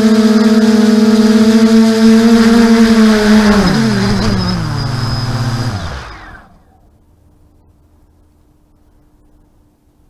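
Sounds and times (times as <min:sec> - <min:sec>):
drone motors whining hum: 0:00.0 - 0:09.7.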